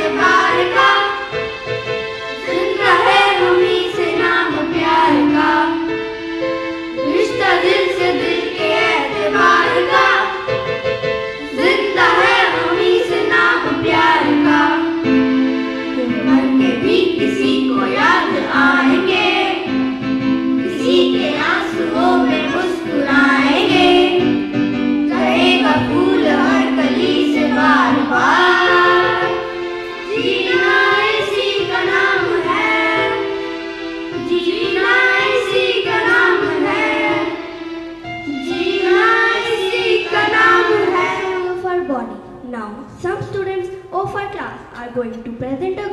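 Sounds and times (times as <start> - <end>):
children singing in unison: 0.0 - 41.6.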